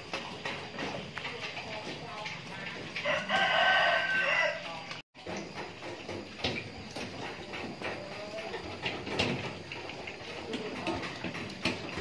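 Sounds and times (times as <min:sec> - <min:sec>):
rooster crowing: 0:03.0 - 0:04.8.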